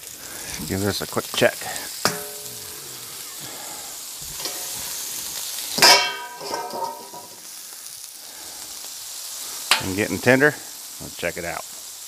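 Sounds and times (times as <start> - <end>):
vegetables sizzling on a griddle: 0.0 - 12.0
metal bowl clanking and ringing: 2.1 - 2.6, 5.8 - 7.3.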